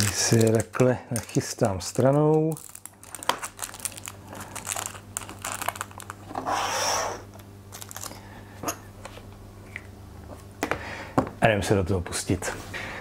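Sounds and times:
packaging crinkling: 0.0s - 6.3s, 7.7s - 8.2s.

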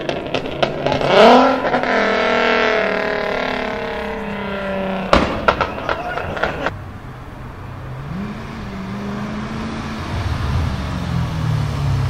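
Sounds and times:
sharp crack: 0.0s - 6.8s
sports car engine revving: 0.0s - 6.8s, 7.6s - 12.0s.

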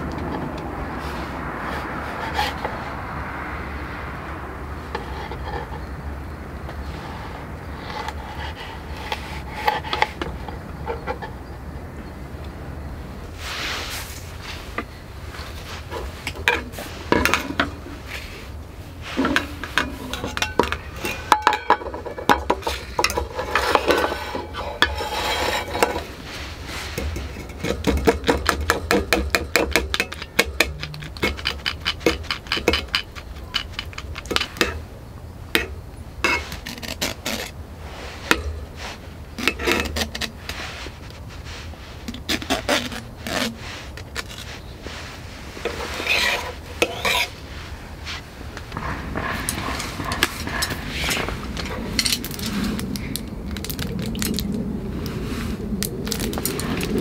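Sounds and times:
rasping scrapes against mesh strainer: 19.0s - 34.8s, 35.6s - 48.2s
metal cups clinking: 19.2s - 26.1s, 35.5s - 36.6s, 45.6s - 47.4s.

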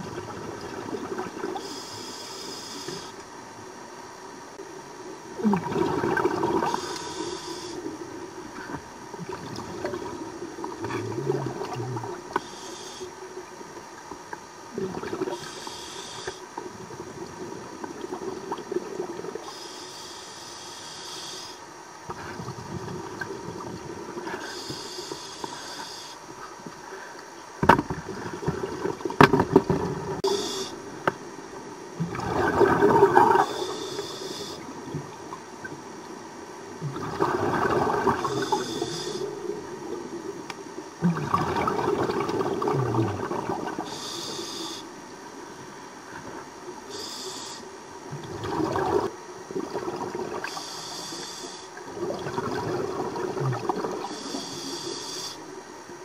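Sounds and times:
regulator inhale hiss: 1.6s - 3.2s, 6.6s - 8.0s, 12.3s - 13.2s, 15.3s - 16.6s, 19.4s - 22.5s, 24.2s - 27.4s, 30.2s - 30.9s, 33.3s - 34.8s, 38.2s - 39.5s, 43.8s - 46.2s, 46.8s - 47.8s, 50.4s - 51.8s, 54.0s - 55.5s
exhaled bubbles burbling: 5.4s - 7.0s, 8.5s - 12.4s, 14.7s - 15.5s, 16.8s - 19.4s, 28.0s - 30.4s, 32.0s - 33.7s, 36.8s - 40.2s, 41.0s - 44.0s, 48.1s - 50.6s, 51.8s - 54.4s.

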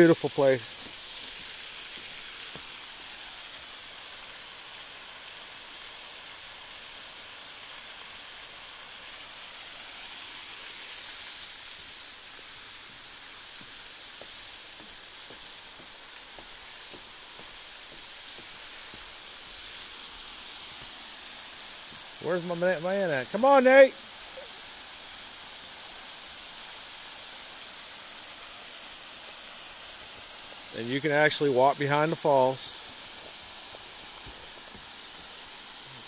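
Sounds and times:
waterfall rushing hiss: 0.0s - 36.0s
footsteps on wooden steps: 0.8s - 2.7s, 13.6s - 19.6s, 33.2s - 34.9s.

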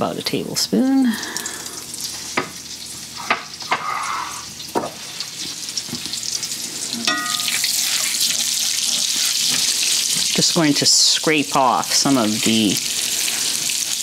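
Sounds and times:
butter sizzling in skillet: 1.6s - 14.0s
spatula stirring pan: 7.0s - 10.6s.

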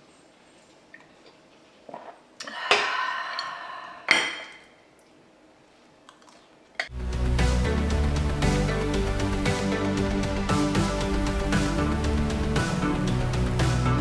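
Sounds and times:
outro music: 6.9s - 14.0s.

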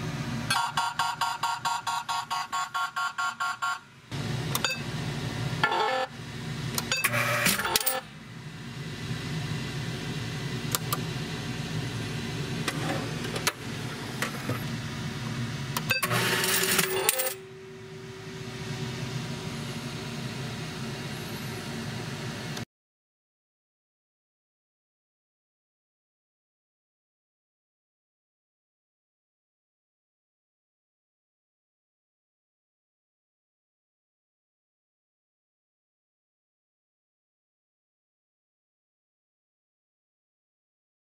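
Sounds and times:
machine hum: 0.0s - 22.6s
rapid alarm beeping: 0.5s - 3.8s
coins clinking: 16.0s - 17.4s
coins rattling in a hopper: 16.0s - 17.4s.

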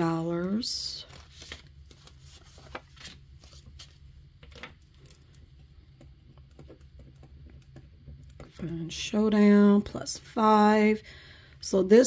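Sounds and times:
plastic binder pages handled: 0.5s - 5.4s
paper cash rustling: 1.0s - 5.2s.

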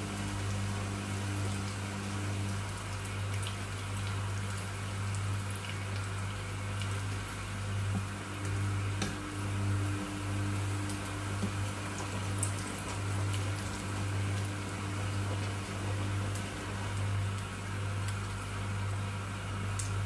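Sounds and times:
chicken frying in hot oil: 0.0s - 20.0s
steady low hum: 6.6s - 20.0s.

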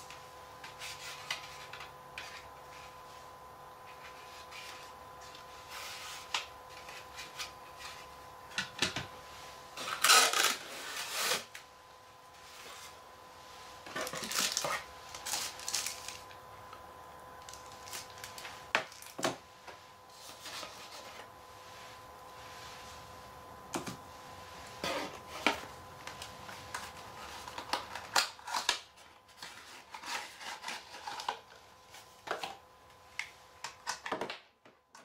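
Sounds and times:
faint steady hum: 0.0s - 35.0s
packaging rustling: 13.8s - 16.4s, 17.4s - 19.3s.

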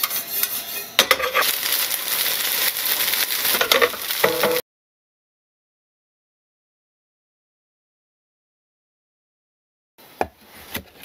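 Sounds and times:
food sizzling in a pan: 0.0s - 4.6s.

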